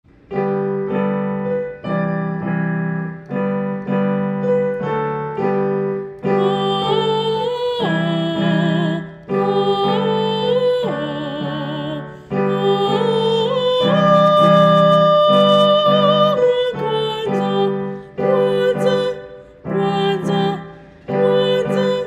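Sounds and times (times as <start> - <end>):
electric piano chords: 0.1 - 22.0
person singing with vibrato: 6.2 - 22.0.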